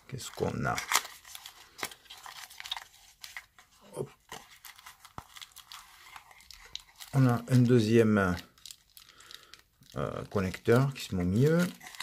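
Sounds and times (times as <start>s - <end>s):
plastic bag crinkling: 4.3s - 12.0s.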